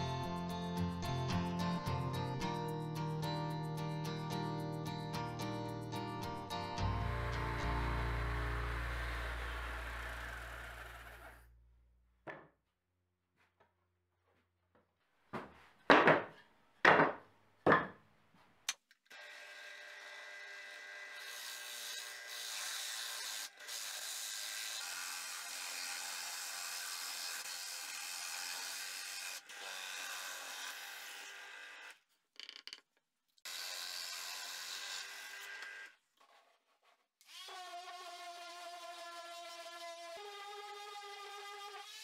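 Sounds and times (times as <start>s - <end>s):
drill press boring wood: 7.1s - 11.4s, 19.1s - 32.0s, 33.5s - 36.0s, 37.2s - 42.0s.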